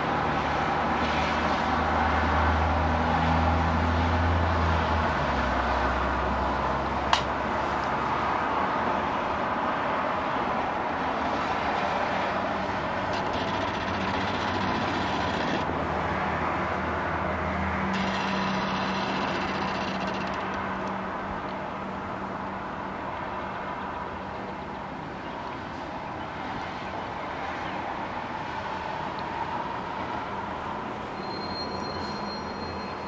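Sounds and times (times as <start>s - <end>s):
distant road traffic: 0.0s - 33.0s.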